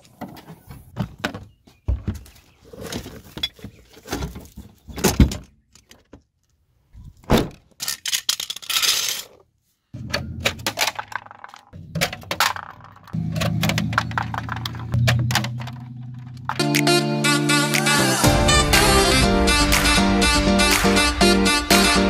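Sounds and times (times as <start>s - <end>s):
knocks clicks and rattles of car parts: 10.0s - 16.7s.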